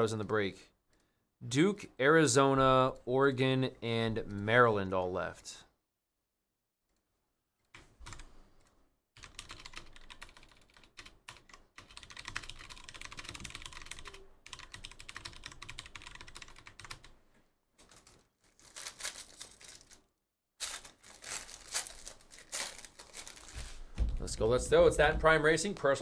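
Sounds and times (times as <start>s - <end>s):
keyboard typing: 7.7s - 17.2s
foil pack crinkling: 17.8s - 24.0s.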